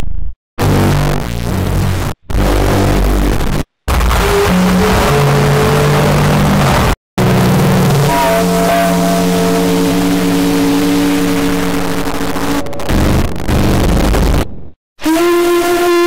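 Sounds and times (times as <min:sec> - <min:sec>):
train horn blasts: 0:07.8 - 0:12.6, 0:15.0 - 0:16.0.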